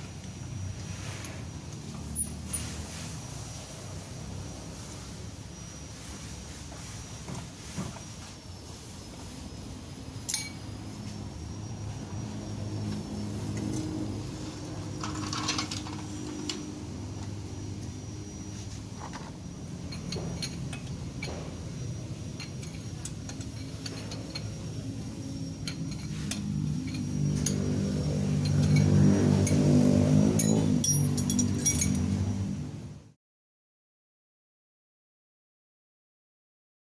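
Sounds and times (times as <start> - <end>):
steady low hum: 0.0 - 33.2
wheel wrench and lug nuts clinking: 10.2 - 10.6, 14.9 - 16.6, 19.0 - 24.8, 25.5 - 32.1.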